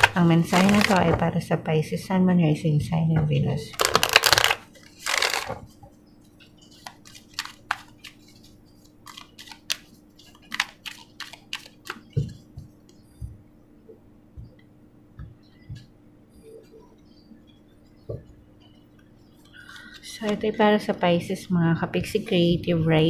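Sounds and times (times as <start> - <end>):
cards swishing: 6.8 - 12.1.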